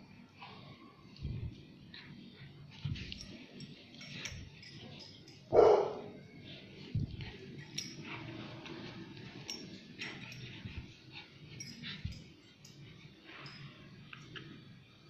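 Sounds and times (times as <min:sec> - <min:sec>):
dog barking: 0:05.5 - 0:06.1.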